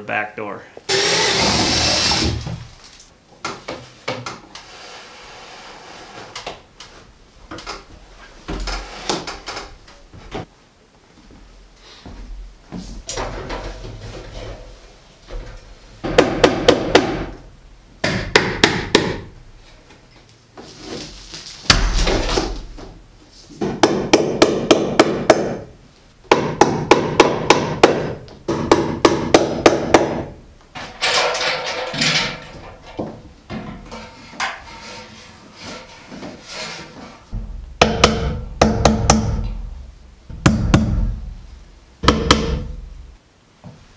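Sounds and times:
hammer blows on staples: 18.0s - 19.3s, 23.6s - 25.7s, 26.3s - 30.3s, 37.8s - 39.6s, 40.3s - 41.2s, 42.0s - 42.8s.

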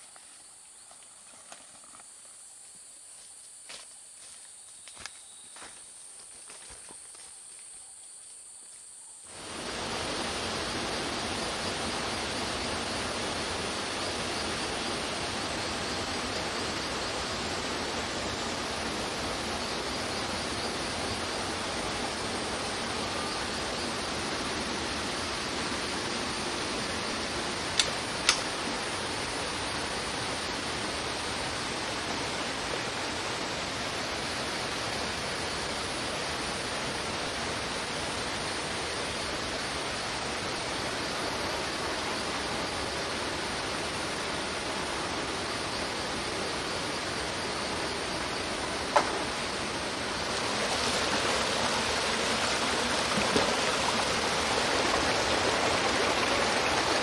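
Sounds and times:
forest ambience: 0.0s - 57.0s
stream rushing over rocks: 9.3s - 57.0s
sharp clicks: 27.8s - 28.5s.

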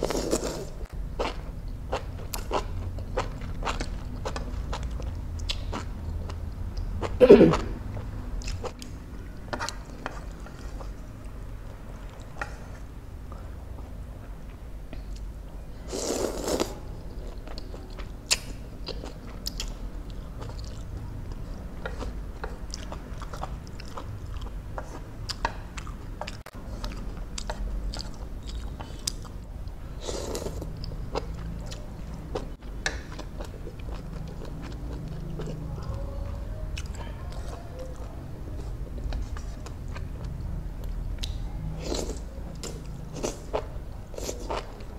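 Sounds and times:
person slurping noodles: 0.0s - 0.8s, 15.9s - 16.8s.

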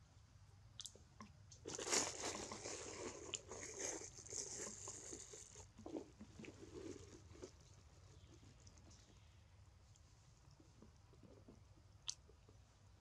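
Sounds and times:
plastic bag crinkling: 1.6s - 7.7s.

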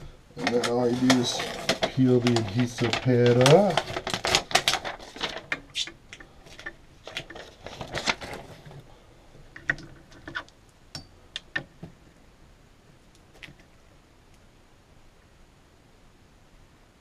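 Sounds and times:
paper liner rustling: 0.4s - 9.0s.

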